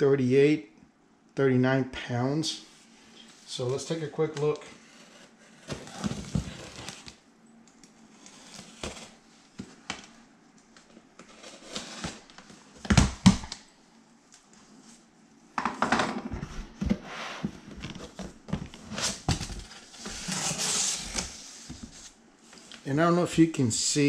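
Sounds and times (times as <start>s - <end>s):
cardboard box scraping and rustling: 4.8s - 7.1s, 11.3s - 12.3s, 18.7s - 22.1s.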